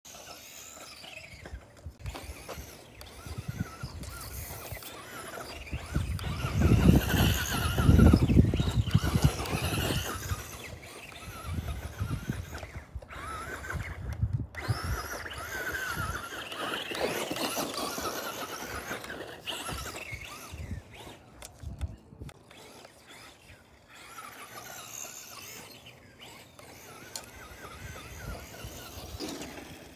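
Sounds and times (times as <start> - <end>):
toy truck electric motor whining: 0.1 - 29.9.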